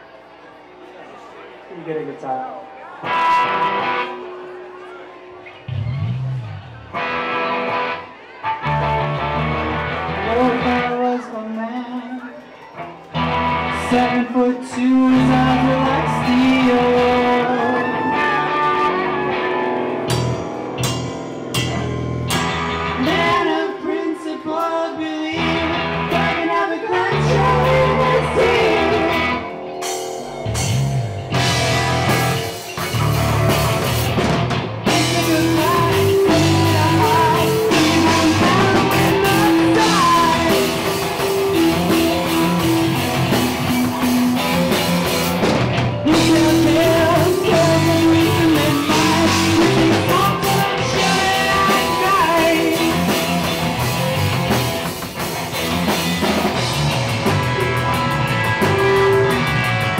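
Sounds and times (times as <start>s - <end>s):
keyboard: 0.0s - 59.9s
electric guitar: 2.9s - 59.9s
person singing: 13.7s - 19.6s, 22.9s - 29.8s, 34.9s - 43.9s, 46.0s - 53.6s
drum kit: 15.0s - 23.6s, 27.0s - 59.9s.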